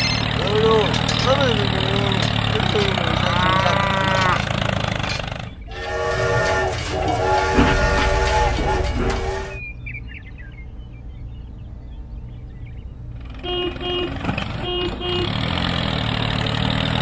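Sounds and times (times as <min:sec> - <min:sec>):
toy train whistle blasts: 0:05.7 - 0:09.6.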